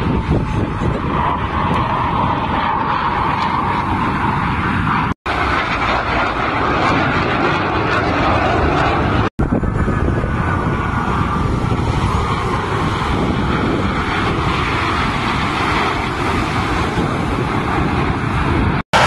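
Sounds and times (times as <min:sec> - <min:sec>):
fighter jets passing: 0:00.0 - 0:19.0.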